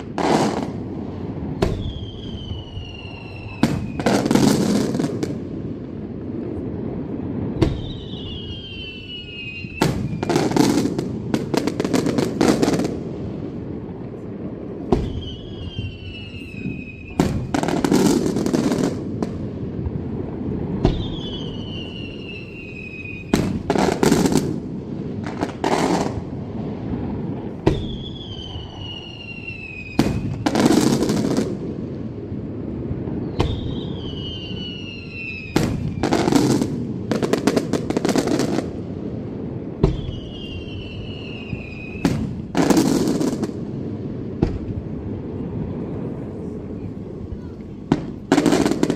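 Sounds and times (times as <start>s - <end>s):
firework falling whistle: 0.0s - 5.4s, 7.4s - 12.9s, 14.8s - 19.3s, 20.6s - 24.5s, 27.4s - 31.5s, 33.0s - 38.6s, 39.7s - 43.6s
firework bangs: 0.0s - 48.9s.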